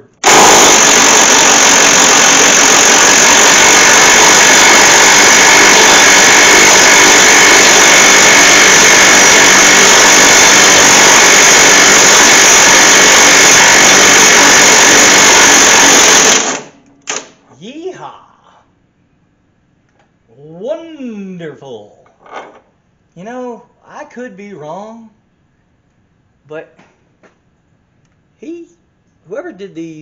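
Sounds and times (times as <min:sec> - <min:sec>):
impact wrench running: 0:00.0 - 0:17.3.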